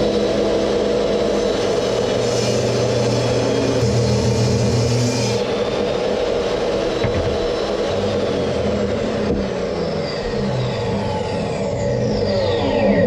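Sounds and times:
table saw running: 0:00.0 - 0:13.0
saw blade cutting plastic: 0:01.6 - 0:05.6.

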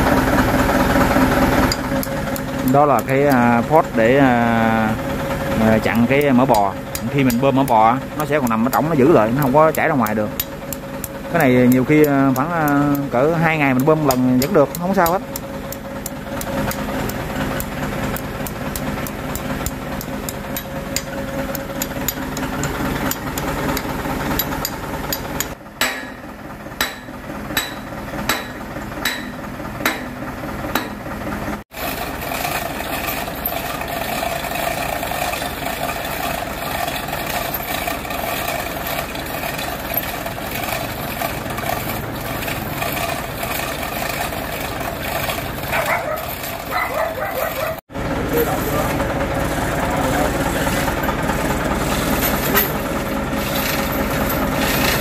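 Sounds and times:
engine hum: 0:00.0 - 0:55.0
mechanical running noise: 0:00.0 - 0:55.0
sharp metal strikes: 0:18.4 - 0:31.0.

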